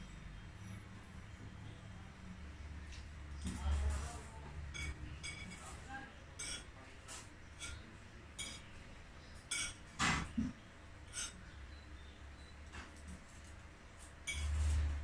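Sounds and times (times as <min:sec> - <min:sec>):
crockery clinking: 0:04.7 - 0:05.7, 0:06.4 - 0:06.8, 0:07.5 - 0:08.8, 0:09.4 - 0:11.6, 0:14.2 - 0:15.0.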